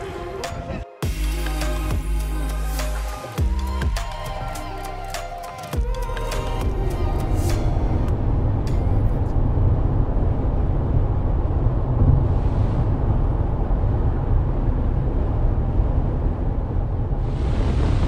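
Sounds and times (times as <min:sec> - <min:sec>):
car interior road rumble: 0:05.8 - 0:18.0.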